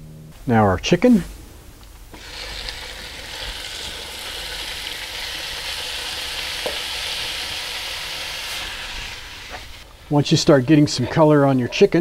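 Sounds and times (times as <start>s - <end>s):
chicken sizzling in oil: 2.2s - 10.2s
wooden spatula stirring: 9.4s - 12.0s.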